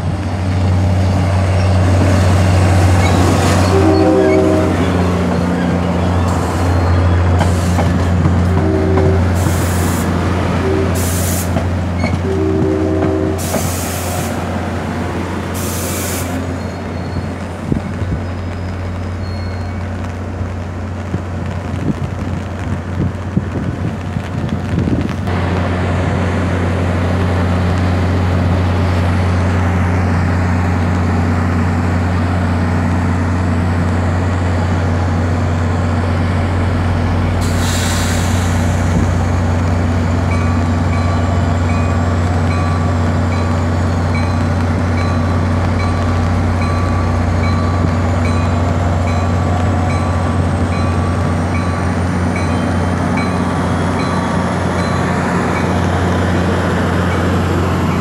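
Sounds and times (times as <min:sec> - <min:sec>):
diesel locomotive humming: 0:00.0 - 0:58.0
air brake release hisses: 0:15.6 - 0:16.5, 0:37.4 - 0:38.9.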